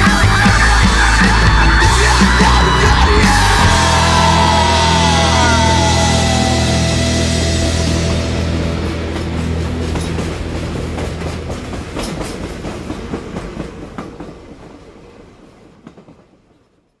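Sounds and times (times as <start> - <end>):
low music chord: 3.5 - 11.9.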